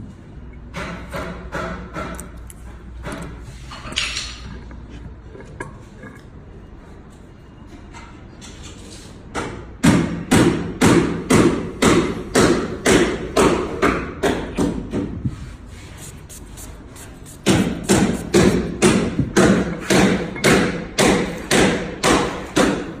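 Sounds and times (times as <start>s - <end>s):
dull thumps: 17.4s - 21.8s.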